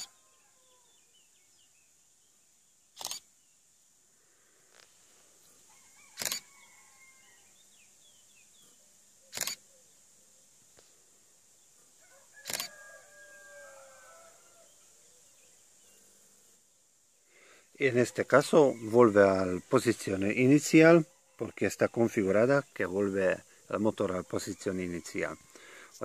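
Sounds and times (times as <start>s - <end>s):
faint bird calls: 0.0s - 1.7s, 4.2s - 11.2s
camera shutter double click: 3.0s - 3.3s, 6.2s - 6.5s, 9.3s - 9.6s, 12.4s - 12.7s.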